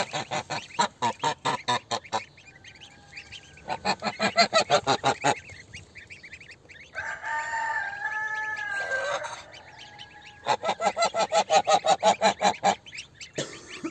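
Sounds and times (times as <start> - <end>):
goose honking: 0.0 - 13.9
goslings peeping: 0.0 - 13.9
rooster crowing: 2.4 - 3.8, 6.9 - 11.0.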